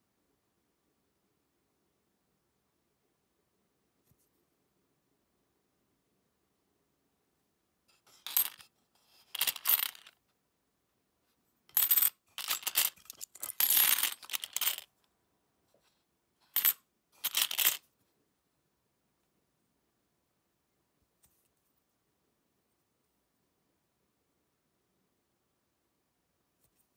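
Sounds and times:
coins clinking and jingling: 8.1 - 10.1, 11.7 - 14.9, 16.5 - 17.8.

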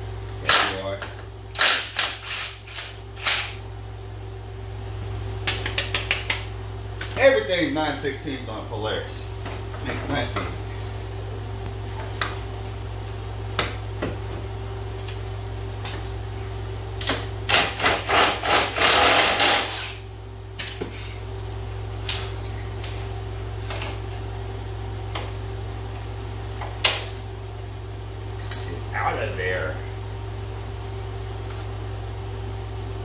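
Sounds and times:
steady hum: 0.0 - 33.0.

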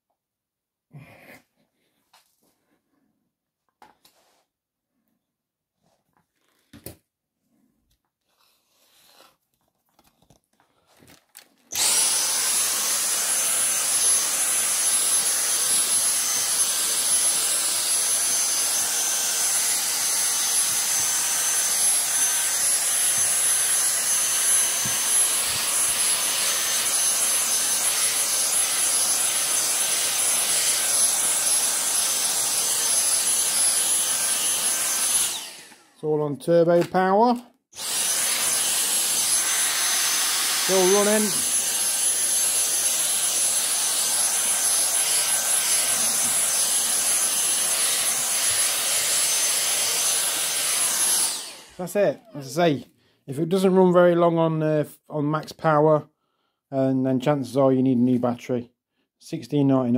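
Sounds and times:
cordless vacuum whining: 11.1 - 36.1, 36.8 - 52.5.

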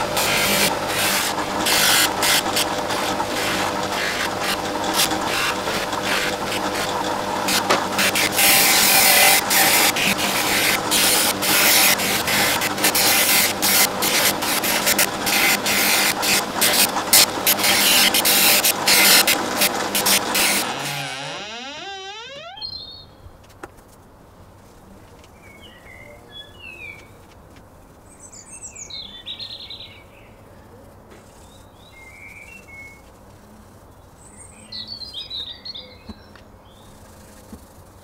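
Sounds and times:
buffing wheel rasping on wood: 0.2 - 22.6
polisher motor humming: 17.5 - 22.6.

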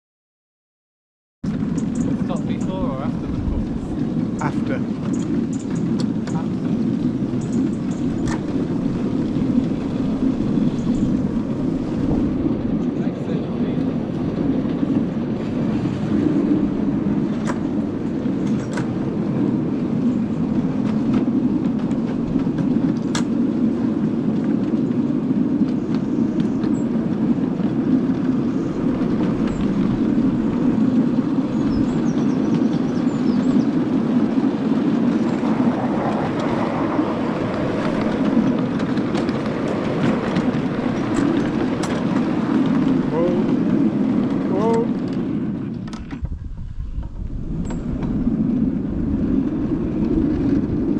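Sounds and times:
miniature train rumbling: 1.5 - 50.9
wheels clicking on track: 1.5 - 50.9.

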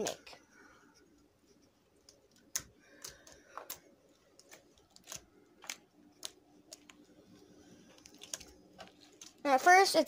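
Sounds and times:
slime being kneaded: 2.0 - 9.4.

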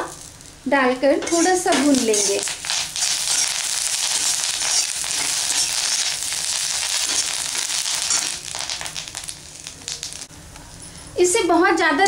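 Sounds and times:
leaves sizzling in hot oil: 0.0 - 10.3
metal spatula stirring: 1.2 - 10.2.

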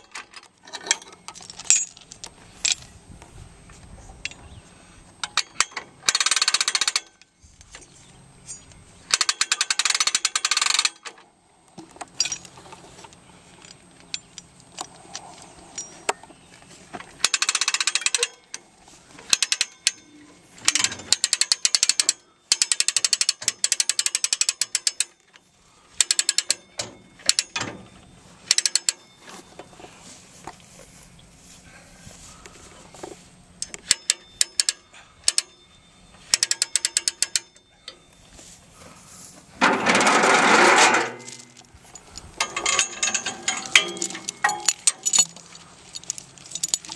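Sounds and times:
winch ratchet clicking: 5.2 - 7.2, 9.1 - 11.2, 17.2 - 18.6, 19.3 - 20.1, 20.7 - 25.2, 26.0 - 27.6, 28.5 - 29.0, 33.6 - 35.6, 36.3 - 37.6.

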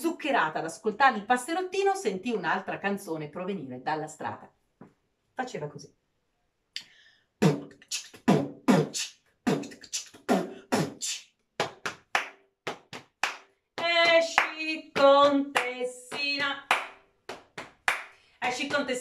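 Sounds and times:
woman beatboxing: 7.4 - 11.9, 13.8 - 16.7, 18.4 - 19.0
hand percussion on body: 7.4 - 14.4, 15.0 - 18.9
woman singing: 13.8 - 16.8, 18.4 - 19.0.

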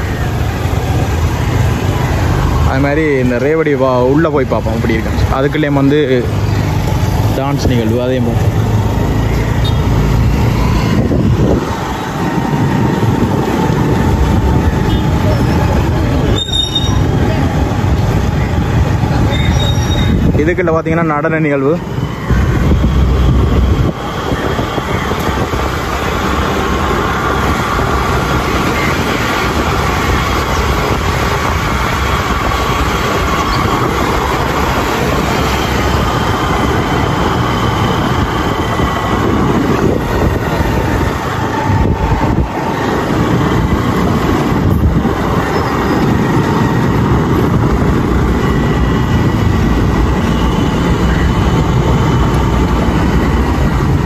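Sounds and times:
wind on microphone: 8.6 - 20.5, 22.0 - 54.0.

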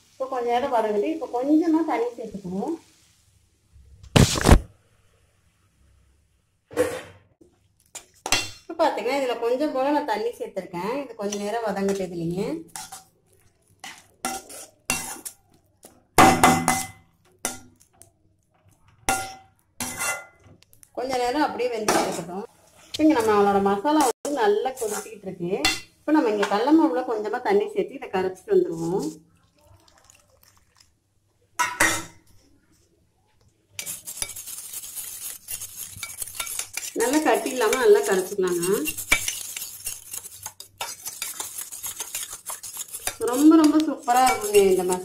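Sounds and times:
metal spoon scraping metal pan: 11.2 - 13.1, 13.8 - 15.4, 19.1 - 20.4, 23.0 - 26.6, 33.8 - 45.0.

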